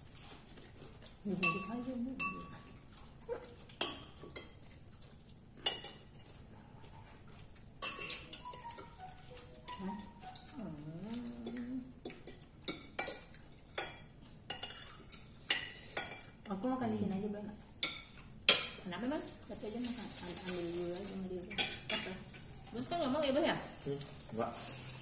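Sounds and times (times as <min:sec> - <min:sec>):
cutlery clinking on plates: 0:01.4 - 0:02.9, 0:05.6 - 0:06.4, 0:07.8 - 0:10.6, 0:11.3 - 0:16.4, 0:21.5 - 0:22.5.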